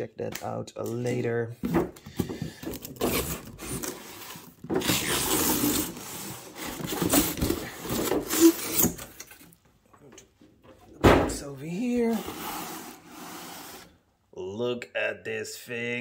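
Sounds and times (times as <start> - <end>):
cardboard scraping: 2.2 - 9.2, 11.8 - 14.0.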